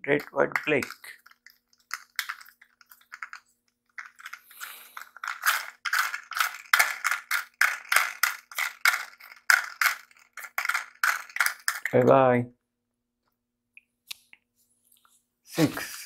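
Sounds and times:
plastic toy clicks and rattles: 0.1s - 12.1s.

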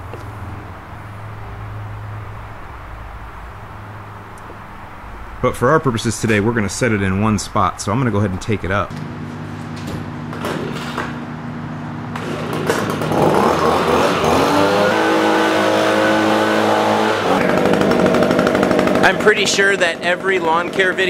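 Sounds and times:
leaf blower running: 12.1s - 21.0s.

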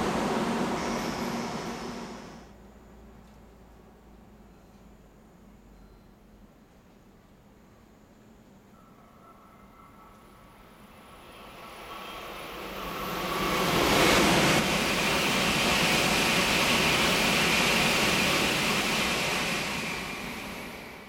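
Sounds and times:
high-speed train passing: 0.0s - 2.6s, 9.2s - 21.0s.

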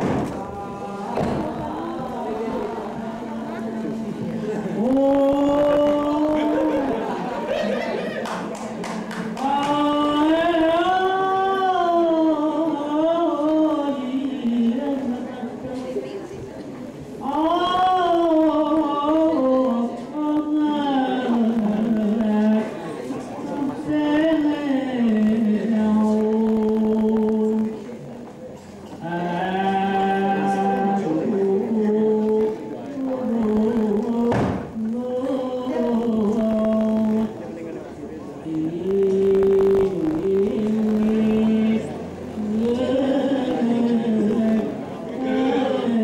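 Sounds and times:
person chanting held notes: 0.0s - 16.3s, 29.0s - 46.0s.

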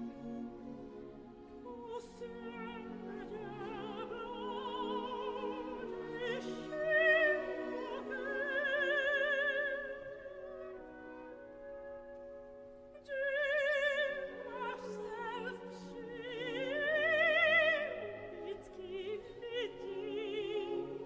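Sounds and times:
orchestral accompaniment: 0.0s - 21.0s
operatic voice singing: 1.7s - 10.0s.

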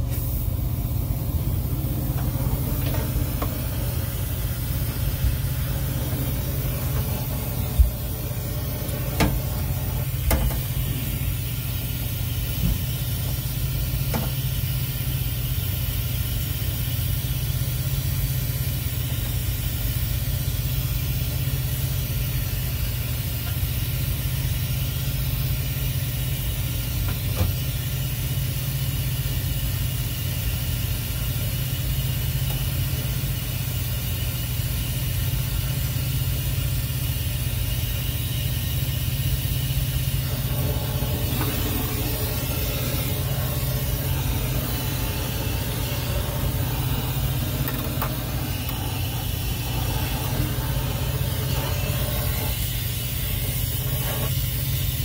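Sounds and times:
torch flame roaring: 0.0s - 12.6s, 38.8s - 54.9s.

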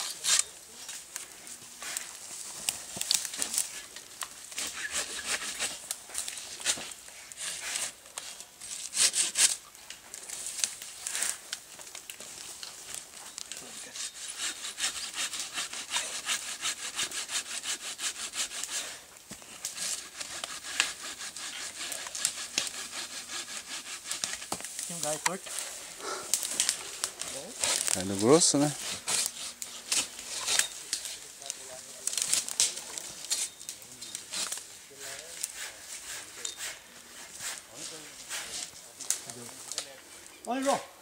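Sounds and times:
hand saw cutting branch: 4.6s - 5.9s, 6.6s - 9.6s, 13.6s - 31.1s, 34.3s - 39.2s.

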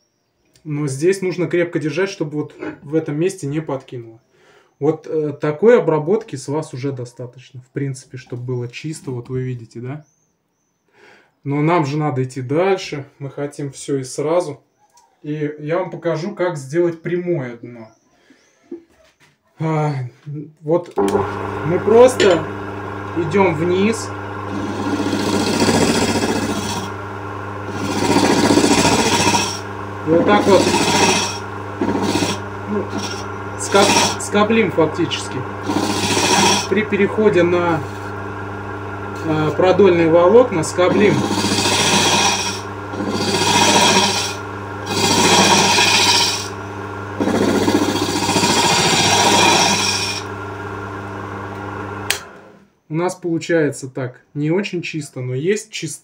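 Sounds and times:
lathe motor humming: 21.0s - 52.6s
tool scraping spinning wood: 21.0s - 52.6s.

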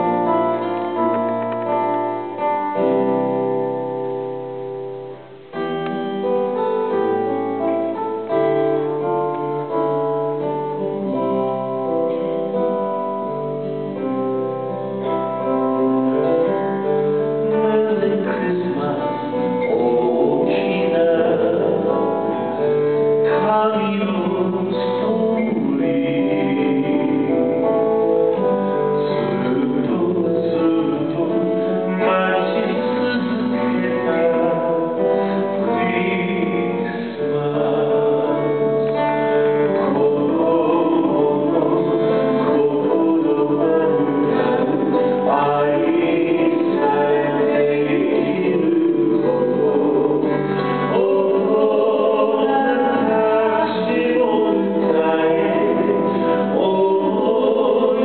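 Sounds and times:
strummed acoustic guitar: 0.0s - 58.0s
people singing: 17.5s - 58.0s.

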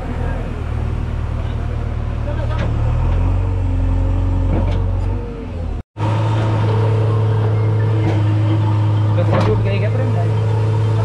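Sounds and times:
diesel engine humming: 0.0s - 11.0s.

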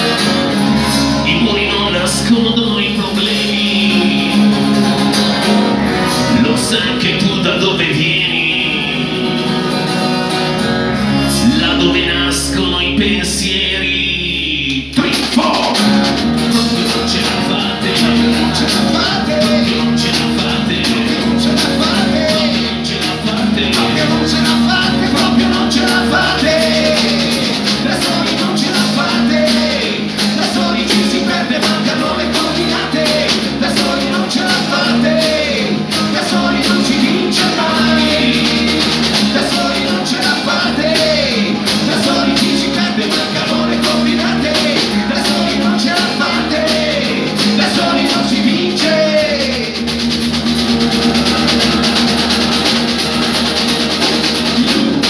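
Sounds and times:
man singing: 0.0s - 5.1s, 6.1s - 9.4s, 11.2s - 50.1s
acoustic punk band playing: 0.0s - 55.0s.

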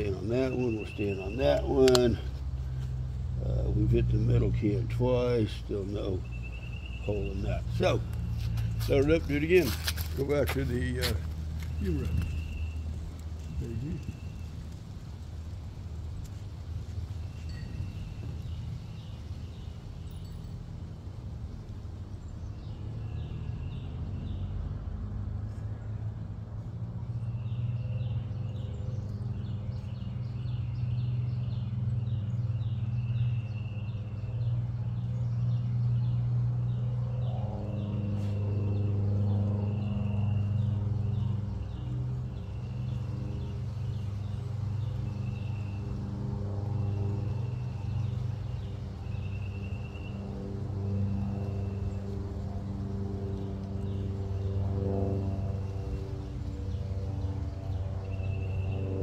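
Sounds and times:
bird chirping: 0.0s - 2.8s, 3.4s - 14.7s, 27.1s - 52.2s, 55.7s - 59.0s
low engine-like drone: 0.0s - 59.0s.

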